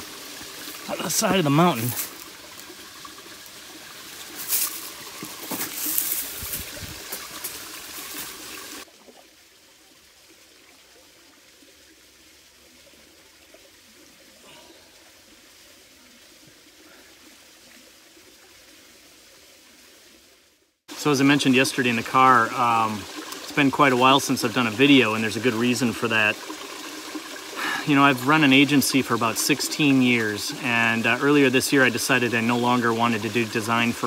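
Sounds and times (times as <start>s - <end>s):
faint outdoor background: 0.0s - 34.0s
water trickling into a pool: 0.0s - 34.0s
dry reed stalks crackling: 4.2s - 8.4s.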